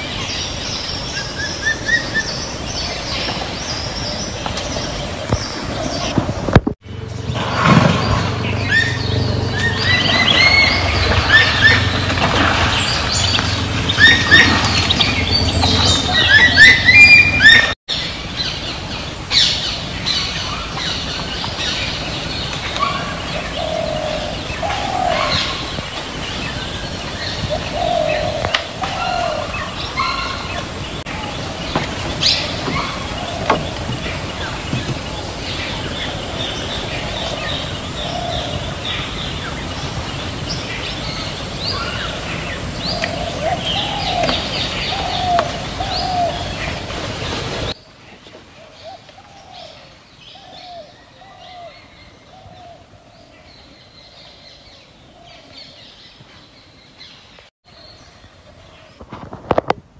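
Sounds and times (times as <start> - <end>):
birds chirping: 0.0 - 59.0
rising and falling bird calls: 7.2 - 47.8.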